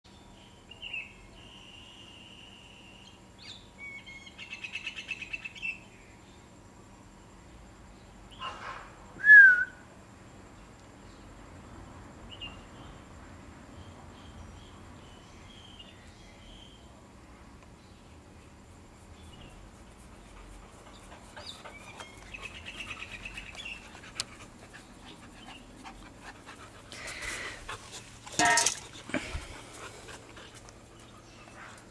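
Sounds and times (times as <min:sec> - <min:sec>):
songbird singing: 0:00.1 - 0:06.7, 0:12.2 - 0:31.9
paws pattering on grass: 0:19.0 - 0:31.9
puppy breathing: 0:20.0 - 0:31.9.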